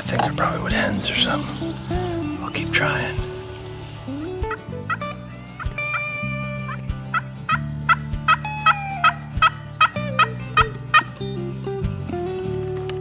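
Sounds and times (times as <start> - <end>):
turkey yelping: 3.3 - 11.1.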